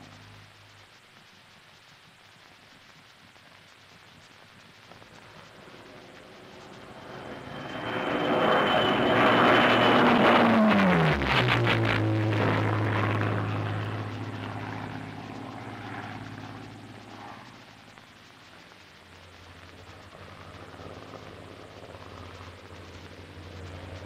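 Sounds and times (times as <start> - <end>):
propeller plane engine passing by: 5.2 - 17.9, 19.8 - 24.0.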